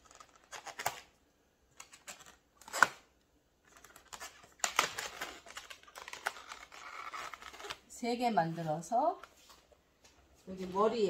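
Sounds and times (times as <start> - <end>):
balloons rubbing and squeaking: 4.0 - 8.9.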